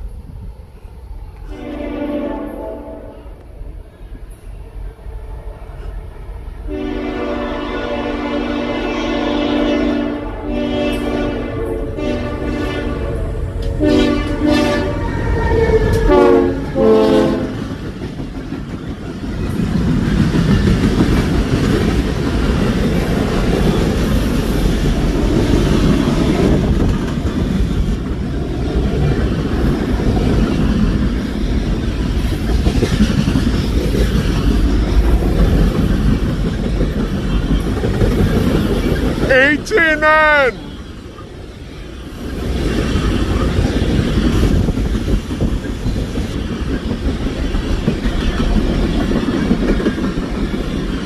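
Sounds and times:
train wheels rumbling on rails: 0:00.0 - 0:51.0
locomotive air horn blasts: 0:01.5 - 0:03.3, 0:06.7 - 0:13.2, 0:13.8 - 0:17.6.

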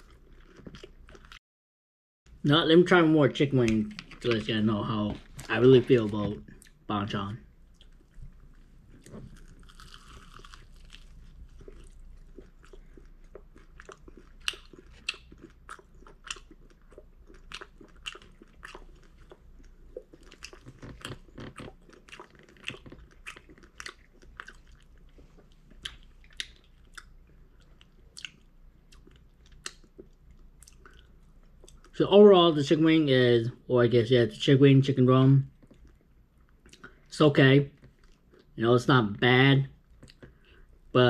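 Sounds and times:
person crunching fried chicken: 0:09.3 - 0:31.8.

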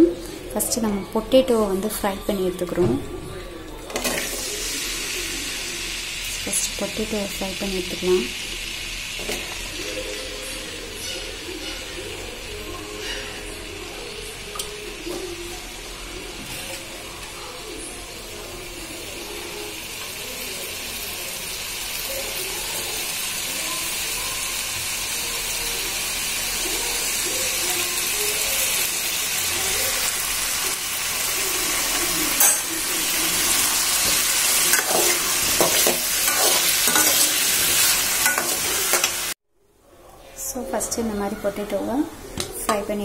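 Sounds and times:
potatoes sizzling in oil: 0:04.0 - 0:39.4
spoon scraping a pan: 0:31.9 - 0:39.3.

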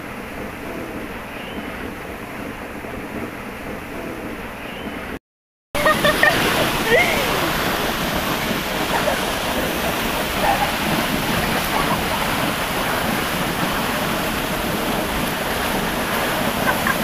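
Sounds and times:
water gushing from pipe: 0:05.8 - 0:17.0.

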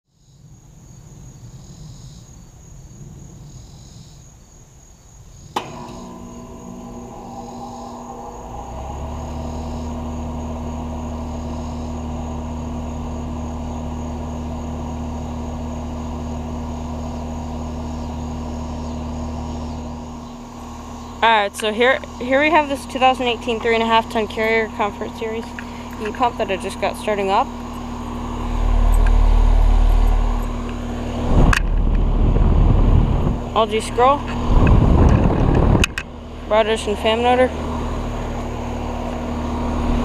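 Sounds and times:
insects chirping: 0:00.1 - 0:40.0
heat pump click: 0:05.6 - 0:10.1
heat pump compressor humming: 0:05.6 - 0:40.0.

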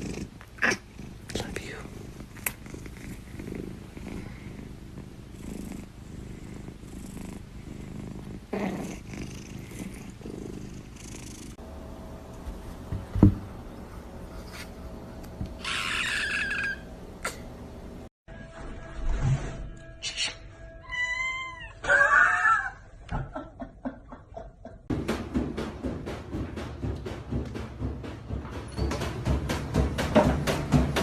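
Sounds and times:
cat purring: 0:00.0 - 0:11.6.

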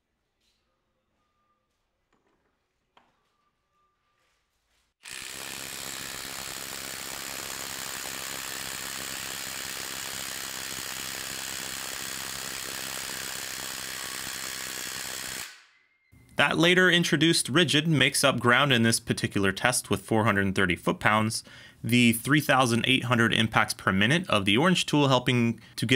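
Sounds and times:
impact wrench rattling: 0:05.0 - 0:15.5.

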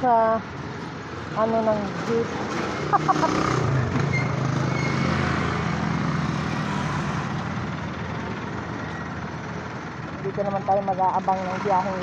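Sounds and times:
vehicle engine hum: 0:00.0 - 0:12.0
motorcycle passing: 0:01.2 - 0:12.0.

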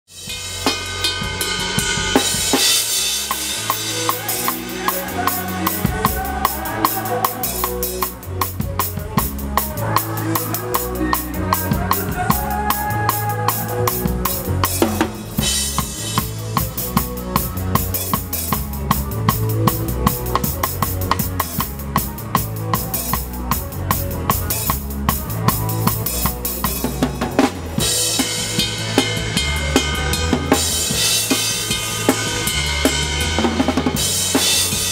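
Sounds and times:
rock drum kit groove: 0:00.0 - 0:34.9
bass line: 0:00.1 - 0:34.9.

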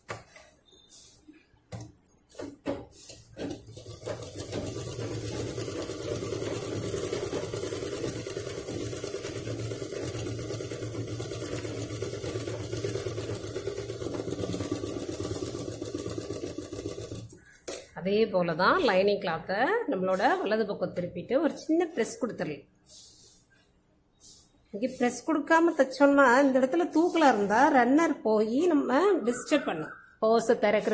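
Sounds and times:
sewing machine stitching: 0:02.4 - 0:17.4.

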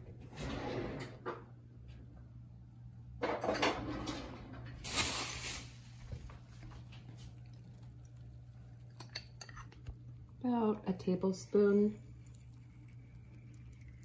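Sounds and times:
low steady hum: 0:00.0 - 0:14.0
kitchen clatters and rustles: 0:03.2 - 0:07.4.

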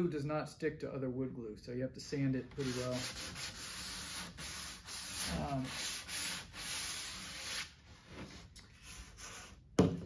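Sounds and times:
hand sanding wood: 0:02.4 - 0:09.6.

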